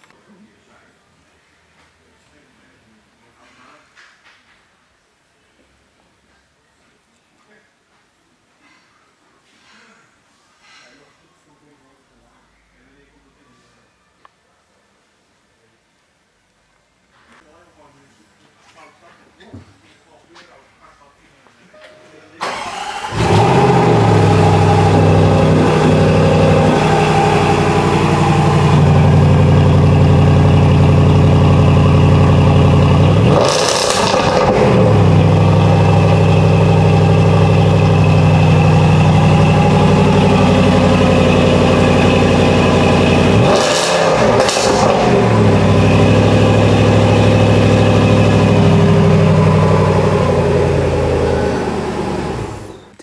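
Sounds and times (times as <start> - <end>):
car engine idling and revving: 22.6 - 52.7.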